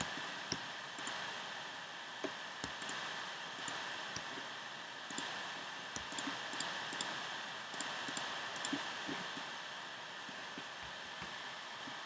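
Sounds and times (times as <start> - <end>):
keyboard and mouse clicks: 0.0 - 1.2, 2.2 - 3.0, 3.6 - 4.3, 5.1 - 5.3, 6.0 - 9.2
steady hiss: 0.0 - 12.0.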